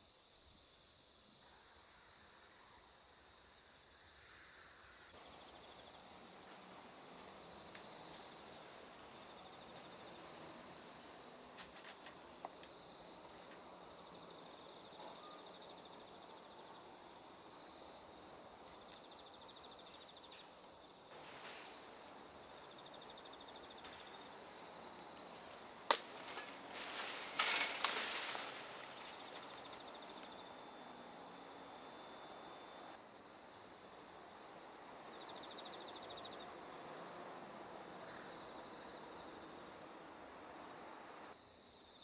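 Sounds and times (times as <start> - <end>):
insects chirping: 0.0 - 42.0
branches and leaves crackling: 21.1 - 30.5
branch snapping: 25.0 - 30.3.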